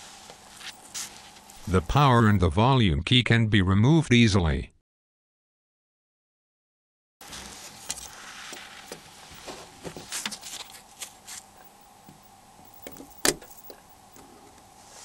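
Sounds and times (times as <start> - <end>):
faint steady hum: 0.0 - 3.3, 7.2 - 15.0.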